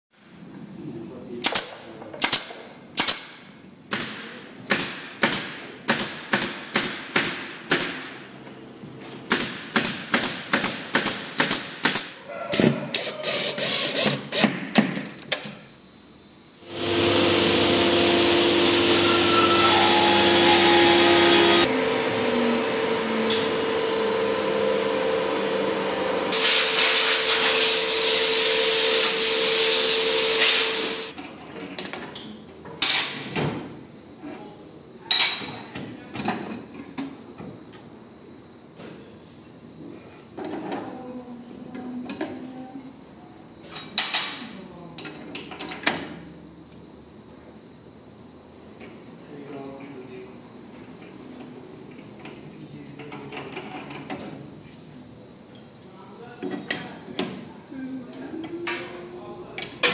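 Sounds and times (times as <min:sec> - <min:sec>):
pneumatic nailer shots: 0:01.4 - 0:08.2, 0:09.2 - 0:15.2, 0:26.3 - 0:31.1
loud steady noise with held tones: 0:09.3 - 0:59.9.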